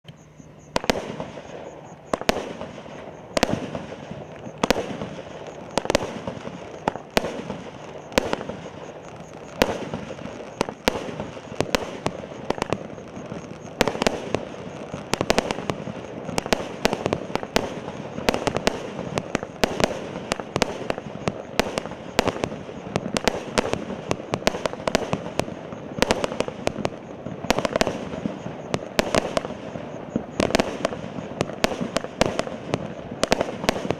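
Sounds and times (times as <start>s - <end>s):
crackling hiss of fireworks stars: 0.0s - 33.9s
fireworks shots: 0.1s - 33.9s.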